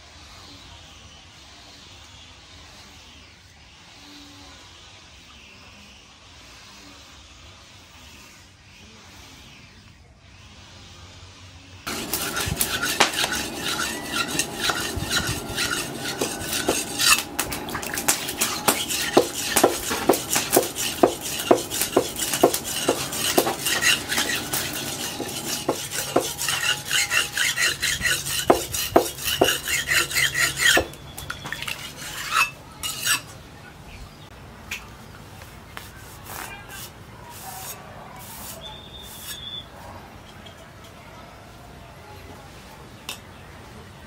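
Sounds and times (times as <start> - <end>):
knife scraping on sharpening stone: 11.9 - 33.3.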